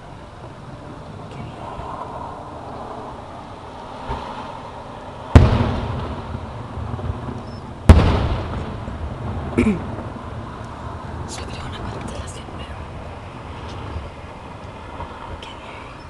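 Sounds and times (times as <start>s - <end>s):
firework shells booming: 5.3s - 10.8s.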